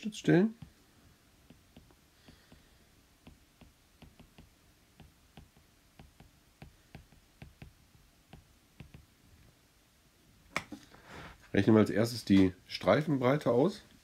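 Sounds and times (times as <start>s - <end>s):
stylus tapping on glass screen: 1.4s - 9.1s.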